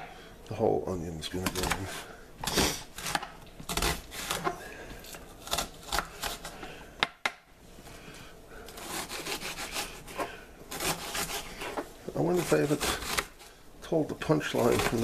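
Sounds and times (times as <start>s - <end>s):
knife slicing onion: 1.4s - 7.1s, 8.7s - 13.5s, 14.4s - 15.0s.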